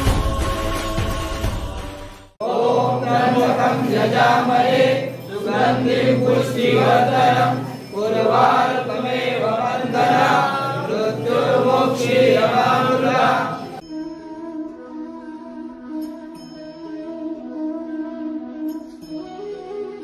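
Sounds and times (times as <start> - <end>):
voices chanting together: 0.0 - 13.8.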